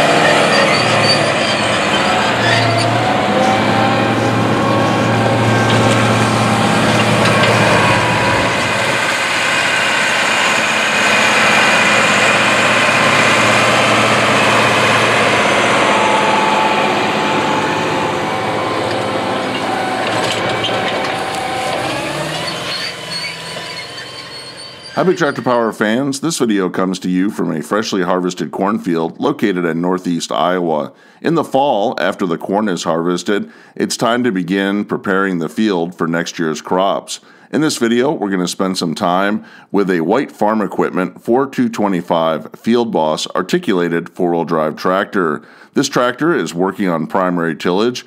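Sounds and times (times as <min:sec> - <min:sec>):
tiller working the ground: 0:00.0 - 0:25.4
diesel tractor engine under load: 0:00.0 - 0:25.8.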